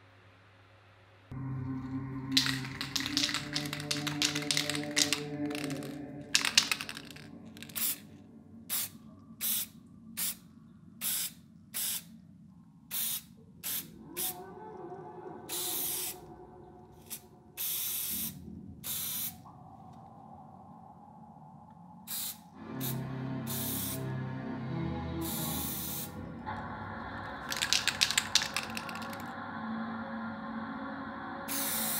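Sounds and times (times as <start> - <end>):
spray paint can hissing: 2.3 - 8.0, 8.7 - 10.4, 11.0 - 12.1, 12.9 - 13.9, 17.1 - 19.3, 22.1 - 22.4, 23.5 - 24.0, 25.2 - 26.2, 27.4 - 29.3, 31.5 - 31.9.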